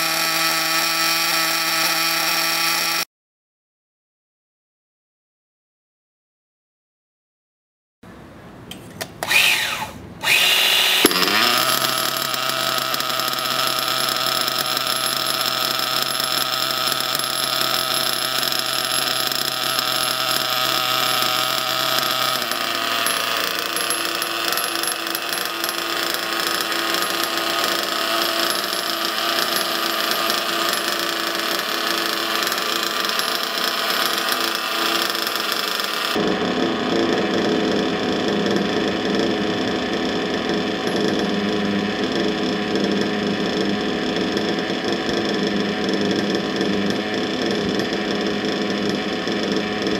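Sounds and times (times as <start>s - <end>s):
starter whir: 0.0s - 3.0s, 9.0s - 49.9s
nitro engine idling: 11.0s - 49.9s.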